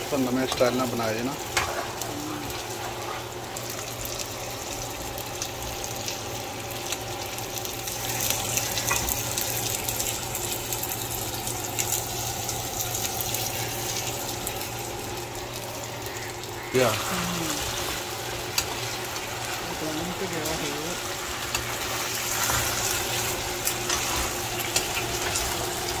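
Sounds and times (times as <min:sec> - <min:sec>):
chicken sizzling in a frying pan: 0:00.0 - 0:26.0.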